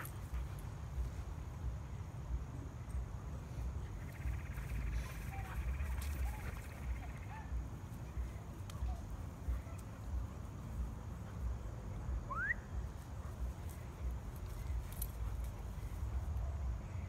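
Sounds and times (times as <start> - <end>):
rising chirp: 3.9 - 7.3.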